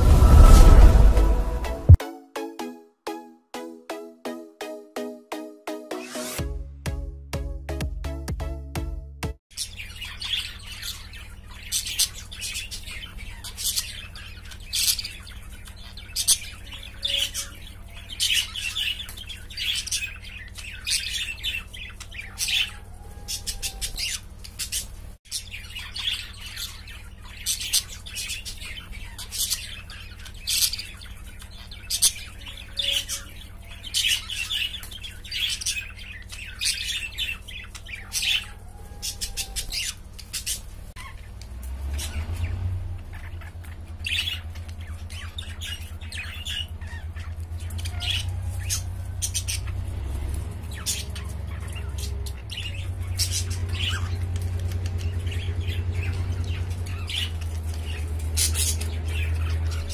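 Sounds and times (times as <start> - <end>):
low hum: 0.0 - 2.0
budgerigars chirping: 9.5 - 59.9.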